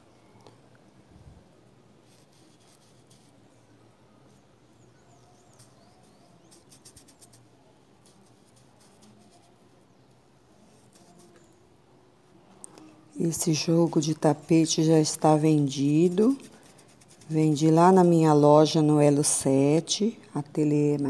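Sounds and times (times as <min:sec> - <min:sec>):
paintbrush dabbing on rubber mat: 0:02.0 - 0:03.4, 0:05.0 - 0:07.4, 0:08.0 - 0:09.7, 0:10.6 - 0:11.4, 0:13.2 - 0:18.8.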